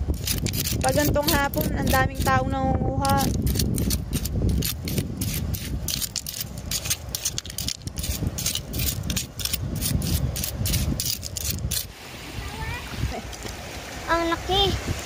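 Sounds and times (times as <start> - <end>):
metal spoon scraping gravel: 0.1 - 2.4, 3.0 - 11.9.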